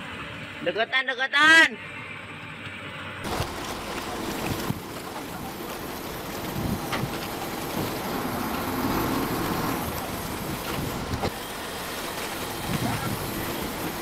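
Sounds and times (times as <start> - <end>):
diesel engine rumbling under load: 3.2 - 14.0.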